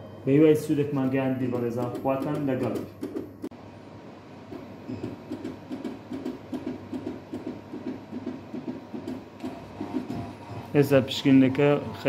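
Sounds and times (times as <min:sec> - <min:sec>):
analyser mechanism whirring: 0:04.8 - 0:12.0.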